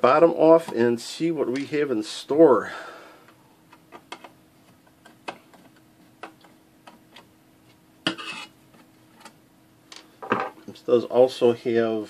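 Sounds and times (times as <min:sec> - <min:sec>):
metal scraping on metal: 0:08.1 - 0:08.6.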